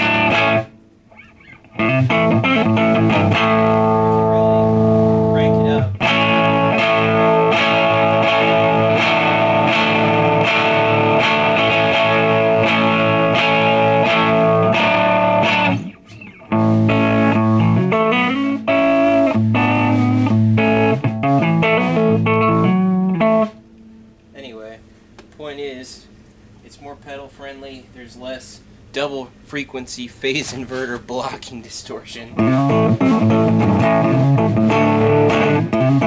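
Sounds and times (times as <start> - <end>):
electric guitar playing: 0.0 - 24.3, 32.3 - 36.0.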